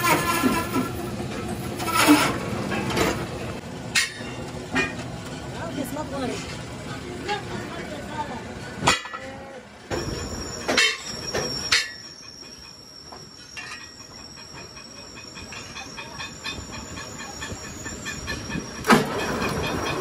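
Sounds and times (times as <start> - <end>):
sharp metallic clanks: 3.9 - 5.0, 8.8 - 20.0.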